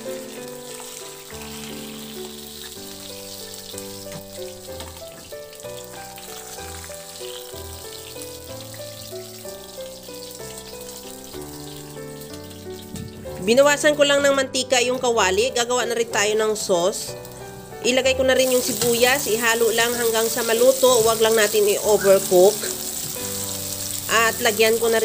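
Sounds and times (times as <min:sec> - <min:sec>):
fish sizzling in hot oil: 0:00.0 - 0:13.9, 0:16.9 - 0:25.0
instrumental background music: 0:00.0 - 0:25.0.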